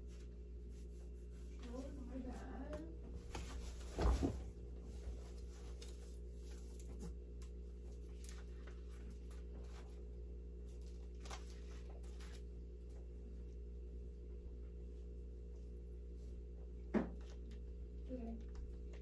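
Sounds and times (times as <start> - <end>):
person dropping onto couch: 3.2 - 4.6.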